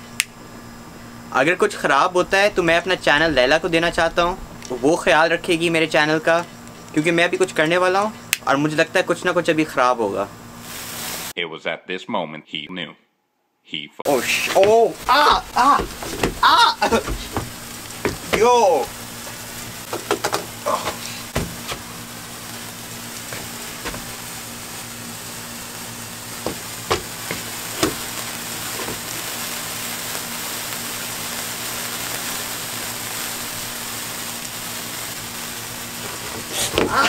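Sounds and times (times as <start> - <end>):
sparkler hissing fizz: 10.5 - 11.4, 14.1 - 37.0
sparkler crackling pops: 10.6 - 11.3, 14.1 - 37.0.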